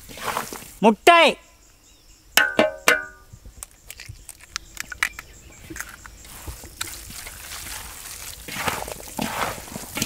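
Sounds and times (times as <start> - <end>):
eggs knocking on metal pot: 2.4 - 3.2
eggshells cracking: 3.6 - 6.1.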